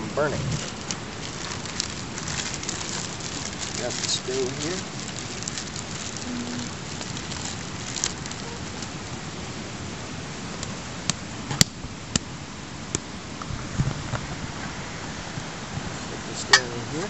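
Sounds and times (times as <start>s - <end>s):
steady hiss: 0.0s - 17.0s
plastic bag crinkling: 0.5s - 9.0s.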